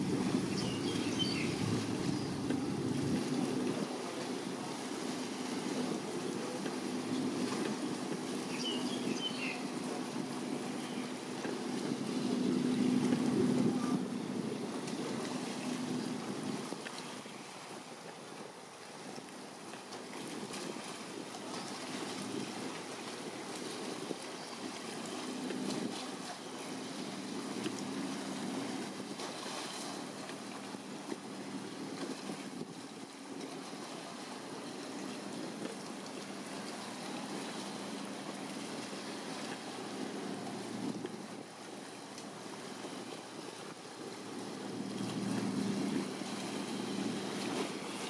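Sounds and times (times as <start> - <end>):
wind buffeting microphone: 0.0 - 17.1, 27.0 - 41.6, 44.3 - 48.0.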